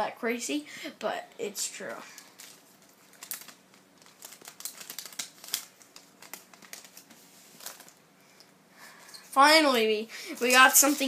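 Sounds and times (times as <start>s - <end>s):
cards and wrapper crinkling: 2.0s - 8.0s, 10.3s - 11.0s.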